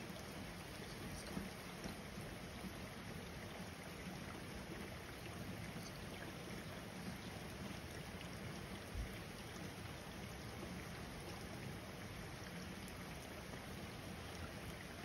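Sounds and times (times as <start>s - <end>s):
faint drip ticks: 0.1s - 2.9s, 5.2s - 9.7s.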